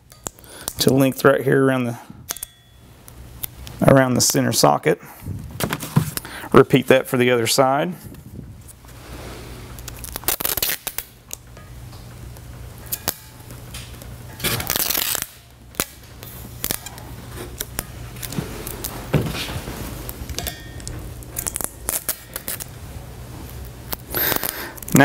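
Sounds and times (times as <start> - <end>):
steady low hum: 0.0 - 25.0
tape ripping off a roll: 9.7 - 11.2, 12.9 - 20.2, 21.2 - 22.8.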